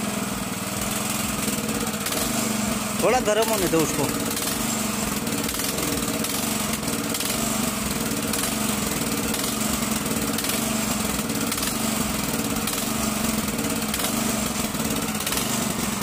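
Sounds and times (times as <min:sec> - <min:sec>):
power tiller engine running: 0:00.0 - 0:16.0.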